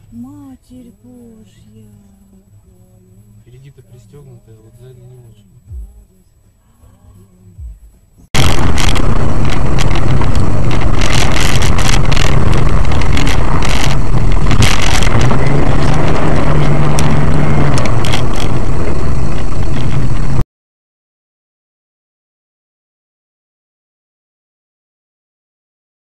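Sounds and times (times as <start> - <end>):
distorted engine and road rumble: 0.0 - 20.5
crackles: 8.3 - 20.4.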